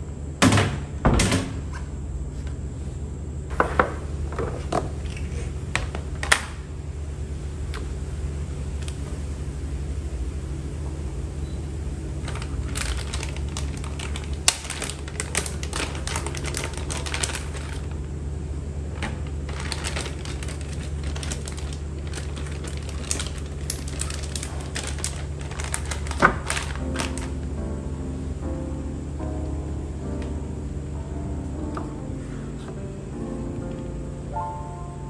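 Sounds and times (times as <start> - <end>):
low hum: 1.7 - 35.0
plastic containers clicking: 12.2 - 17.9, 19.0 - 27.3.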